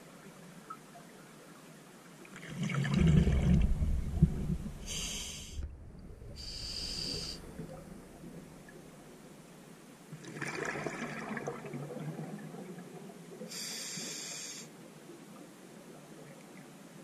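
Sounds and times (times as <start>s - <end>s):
exhaled bubbles gurgling: 2.4s - 5.0s, 5.6s - 9.4s, 10.2s - 13.1s
regulator hissing: 6.4s - 7.6s.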